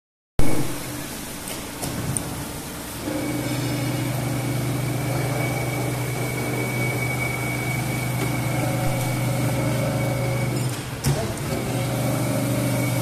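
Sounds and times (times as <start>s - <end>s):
grinding machine motor hum: 2.9s - 13.0s
thin high whine: 3.0s - 10.8s.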